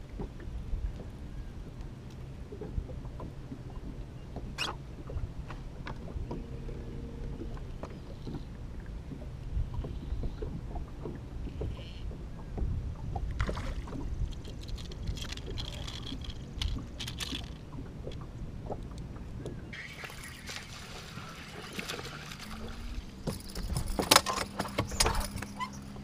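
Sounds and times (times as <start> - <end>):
low steady rumble: 0.0 - 26.0
water lapping against boat hull: 0.0 - 26.0
fish splashing in water: 19.7 - 24.1.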